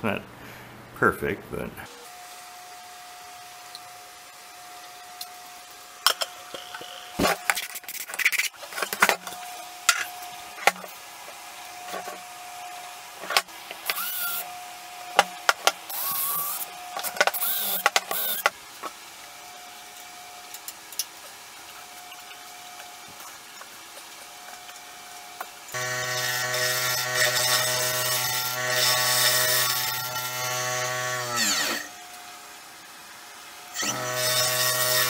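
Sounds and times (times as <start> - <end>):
cordless drill whining: 13.8 - 14.5, 15.9 - 16.7, 17.3 - 18.5.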